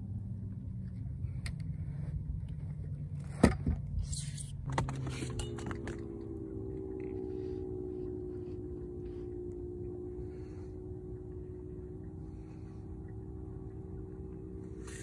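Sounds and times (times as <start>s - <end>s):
steady hum of held tones: 0.0s - 15.0s.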